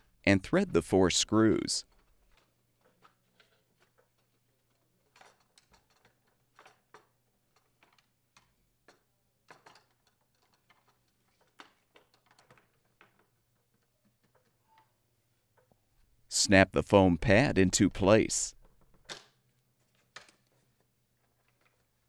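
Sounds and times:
plastic parts handled: 1.9 - 15.9, 18.6 - 22.0.

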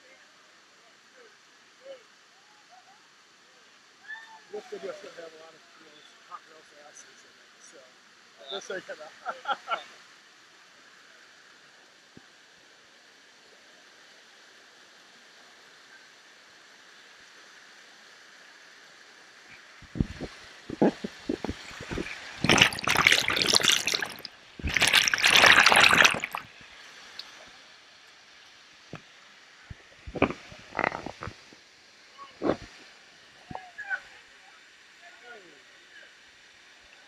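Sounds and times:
water splashing against microphone: 19.5 - 27.4, 29.7 - 31.6, 32.4 - 32.8
waterfall rushing: 19.8 - 26.5.

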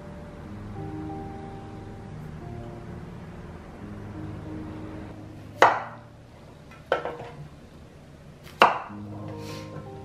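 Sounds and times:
knife chopping on cutting board: 5.6 - 6.0, 8.4 - 9.0.

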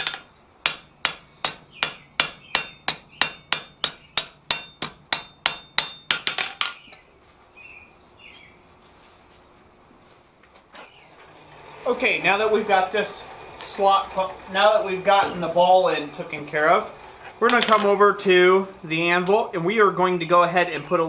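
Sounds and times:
hammer striking steel on anvil: 0.0 - 6.8.

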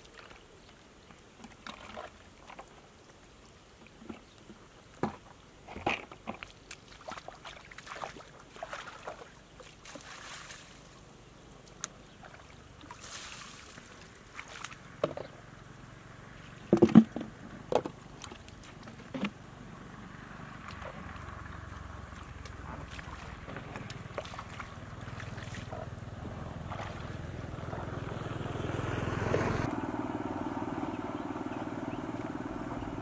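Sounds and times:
water splashing and sloshing: 0.0 - 15.5, 16.3 - 28.4.

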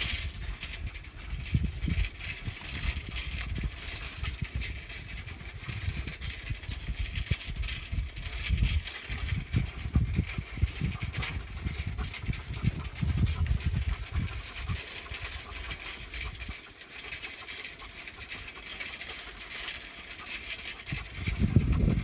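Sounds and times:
bicycle rattling over bumps: 0.0 - 22.0
bicycle tyres on loose dirt: 0.0 - 22.0
wind buffeting microphone: 0.0 - 22.0.

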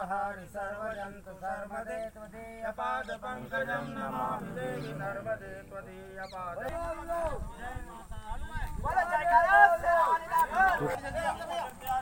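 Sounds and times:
men chanting: 0.0 - 7.6.

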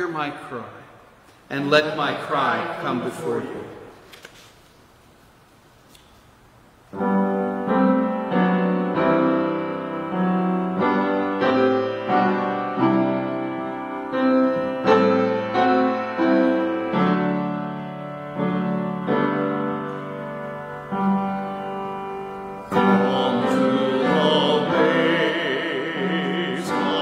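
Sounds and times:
slow piano music: 6.9 - 27.0.

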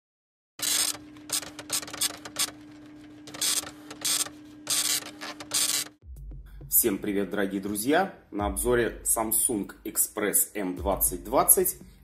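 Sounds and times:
printer hum: 0.6 - 6.0
printer mechanical bursts: 0.6 - 6.0.

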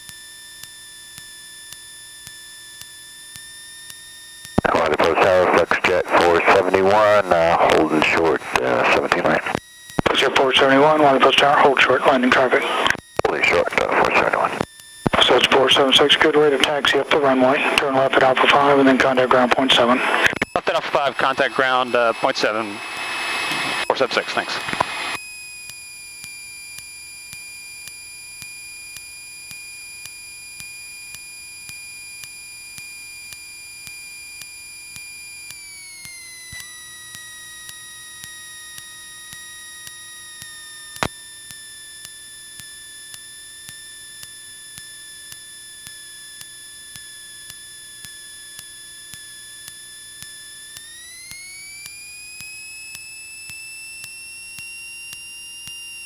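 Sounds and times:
faint regular ticks: 0.0 - 7.0, 12.8 - 16.1, 24.5 - 56.0
high electrical whine: 0.0 - 56.0
sharp click: 25.7 - 56.0.

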